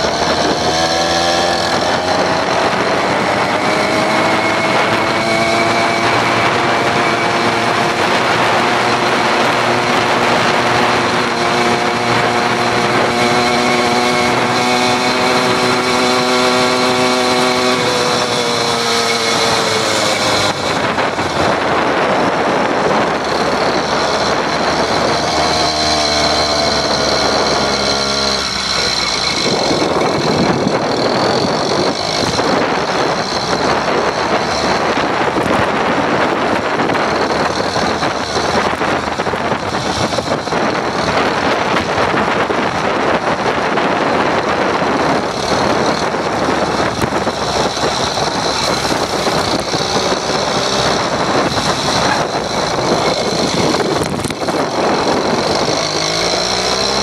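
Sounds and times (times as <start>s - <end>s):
road and wind noise: 0.0s - 57.0s
small gasoline engine running: 0.0s - 57.0s.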